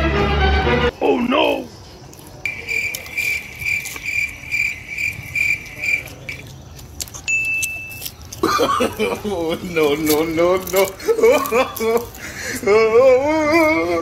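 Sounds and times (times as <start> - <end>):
short steady beep: 2.5 - 3.4.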